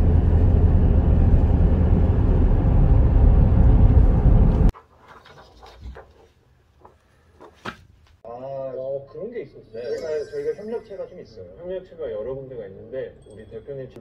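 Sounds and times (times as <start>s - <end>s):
loud low rumbling: 0.0s - 4.7s.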